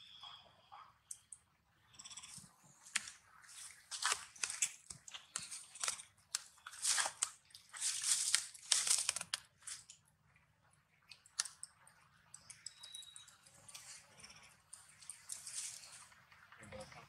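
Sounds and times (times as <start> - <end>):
dry leaves crunching: 2.8 - 9.9, 15.3 - 16.0.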